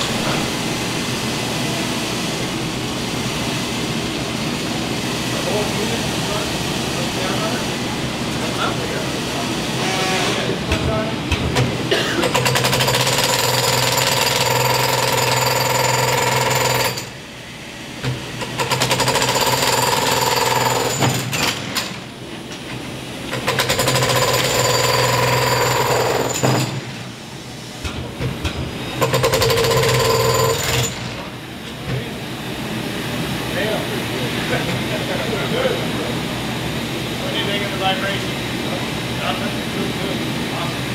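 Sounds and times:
breaker hammering concrete: 0:10.7 - 0:17.1, 0:18.0 - 0:22.0, 0:23.3 - 0:26.9, 0:27.8 - 0:31.1.

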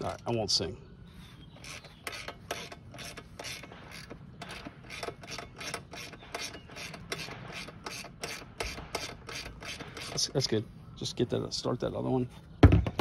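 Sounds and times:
ratchet wrench clicking: 0:01.6 - 0:10.2.

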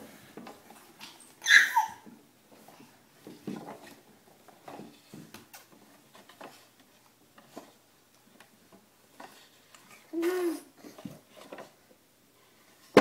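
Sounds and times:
wooden walker clattering on floor: 0:02.0 - 0:09.9.

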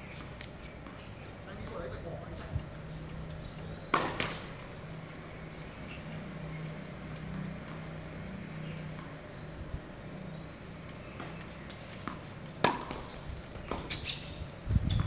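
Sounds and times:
tennis ball knocks: 0:03.9 - 0:04.5, 0:12.0 - 0:14.0.

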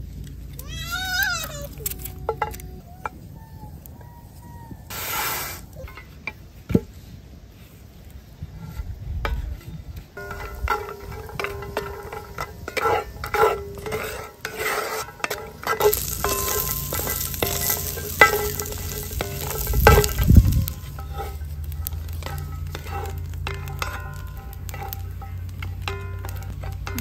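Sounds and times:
food sizzling in oil: 0:10.2 - 0:27.0
spatula scraping skillet: 0:10.2 - 0:27.0.

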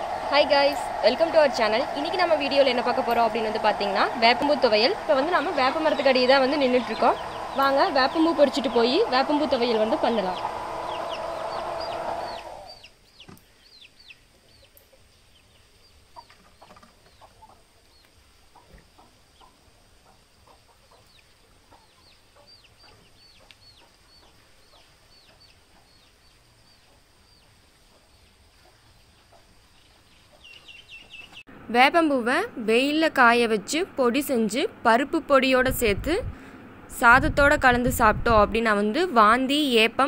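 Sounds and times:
chickens clucking: 0:05.4 - 0:31.4
small birds chirping: 0:05.4 - 0:31.5.

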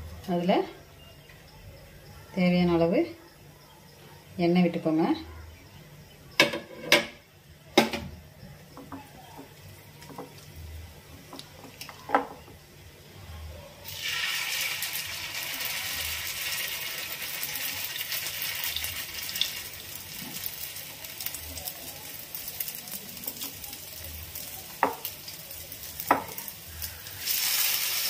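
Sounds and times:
oil sizzling on a griddle: 0:13.8 - 0:28.0.

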